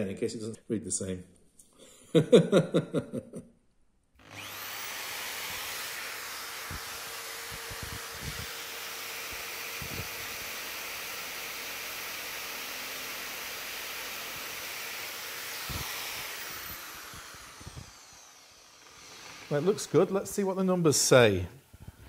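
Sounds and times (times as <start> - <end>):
electric drill boring wood: 4.2 - 22.0.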